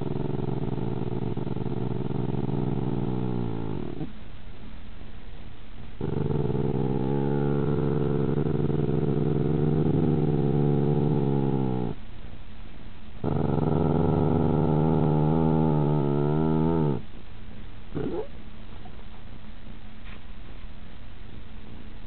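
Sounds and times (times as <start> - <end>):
puppies growling: 0.0 - 4.1, 6.0 - 12.0, 13.2 - 17.0, 18.0 - 18.3.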